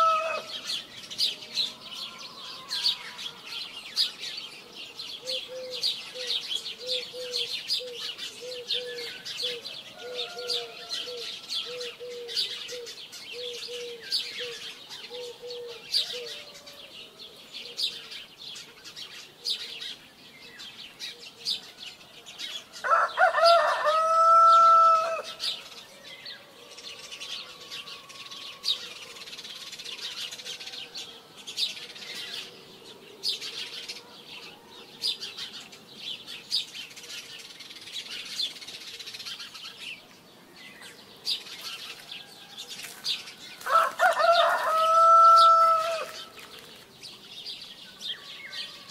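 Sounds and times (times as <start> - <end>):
rooster crowing: 0.0 - 0.6, 9.9 - 11.9, 22.8 - 25.4, 43.6 - 46.3, 48.1 - 48.9
small birds chirping: 0.0 - 48.9.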